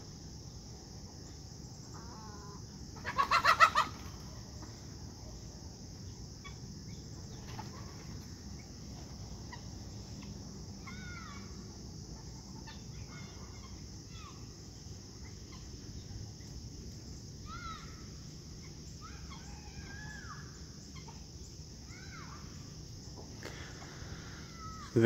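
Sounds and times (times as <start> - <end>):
chickens squawking and clucking: 2.0 - 4.8.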